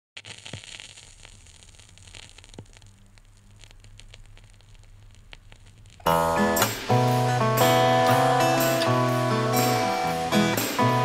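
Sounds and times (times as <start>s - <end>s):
clicks and crackles: 0.2s - 6.8s
faint static hiss: 0.2s - 11.0s
low steady hum: 1.0s - 8.0s.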